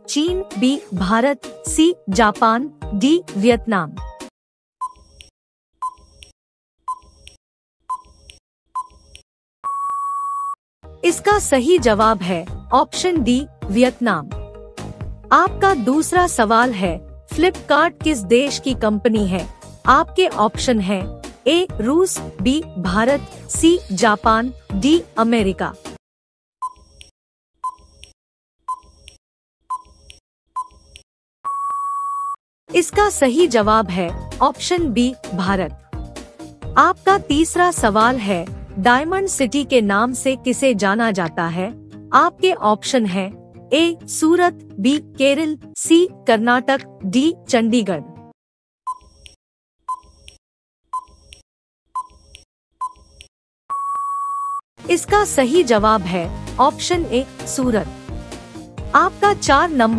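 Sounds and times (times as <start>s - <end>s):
electronic beep-ticks: 4.8s - 5.0s, 31.5s - 32.4s, 49.9s - 50.1s, 53.7s - 54.6s
steady high beep: 53.7s - 54.6s.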